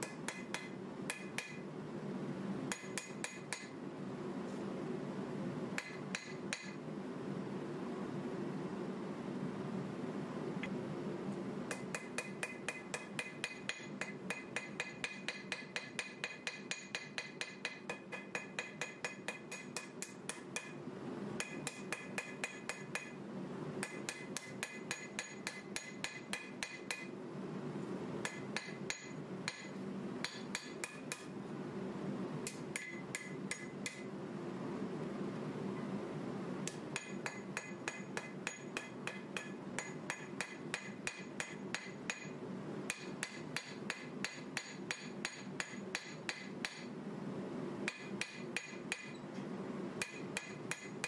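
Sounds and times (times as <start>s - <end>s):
hammer blows ringing on anvil: 0.0s - 1.6s, 2.7s - 3.7s, 5.8s - 6.8s, 11.7s - 20.8s, 21.4s - 23.2s, 23.8s - 27.1s, 28.2s - 31.3s, 32.5s - 34.0s, 37.0s - 42.3s, 42.9s - 46.9s, 47.9s - 49.2s, 50.0s - 50.9s.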